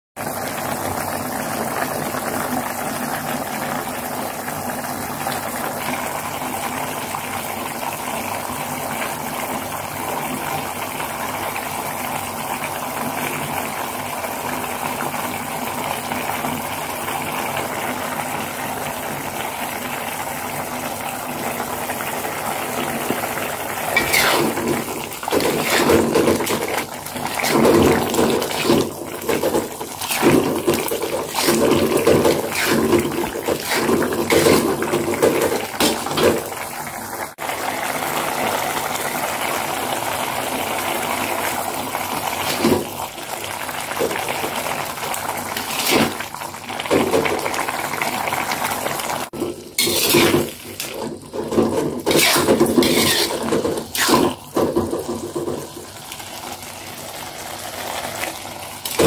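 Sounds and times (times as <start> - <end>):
sauce sizzling in oil: 13.3 - 59.0
spatula scraping thick sauce: 24.0 - 24.6, 25.4 - 28.8, 30.0 - 34.7, 49.8 - 50.4, 52.1 - 54.2.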